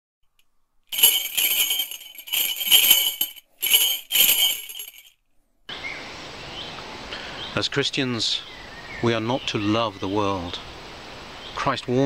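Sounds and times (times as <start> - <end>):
metallic jingling: 0.9 - 5.2.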